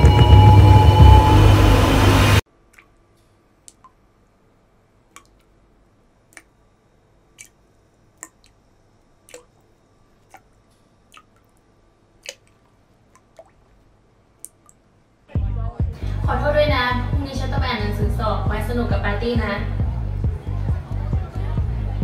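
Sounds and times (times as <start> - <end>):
water dripping: 2.7 - 3.0, 3.6 - 4.0, 5.1 - 5.5, 6.3 - 6.6, 7.3 - 14.9.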